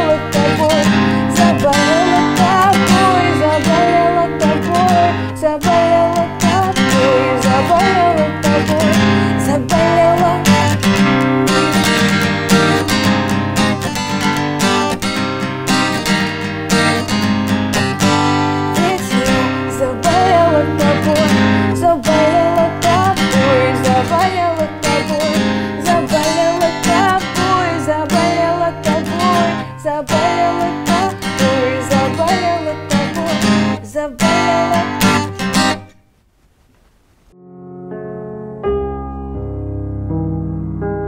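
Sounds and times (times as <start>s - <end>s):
woman singing: 0.0s - 11.1s, 18.6s - 35.3s
strummed acoustic guitar: 0.0s - 35.9s.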